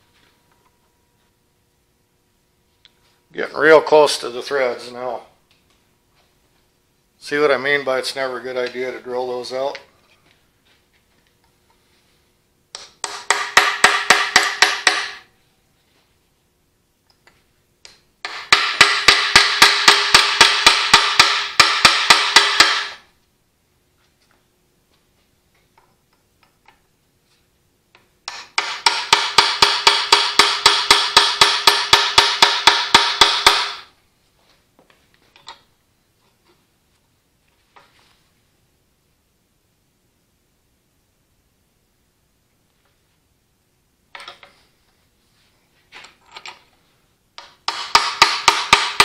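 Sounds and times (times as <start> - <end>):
hammer ringing on metal: 13.0 - 15.3, 18.3 - 23.0, 28.6 - 33.9.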